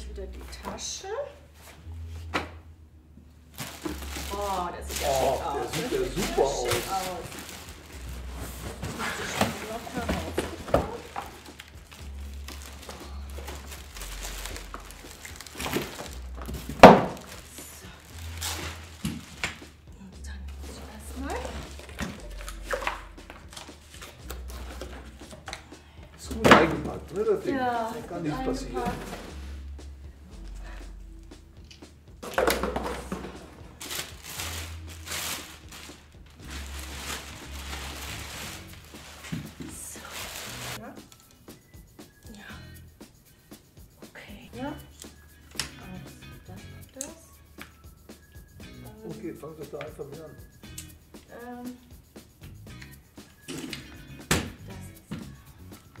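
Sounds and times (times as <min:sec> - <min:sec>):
plastic film crinkling: 0:03.5 - 0:19.7, 0:32.8 - 0:40.8.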